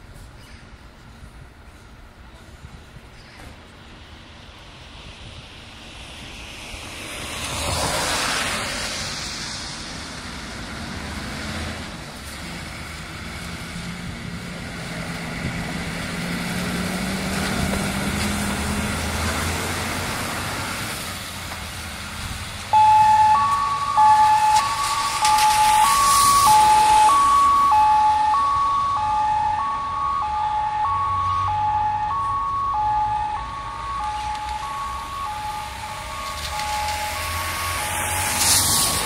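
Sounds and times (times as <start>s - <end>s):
road noise: 0.0s - 39.0s
diesel truck engine accelerating: 3.7s - 39.0s
two-tone siren: 22.7s - 39.0s.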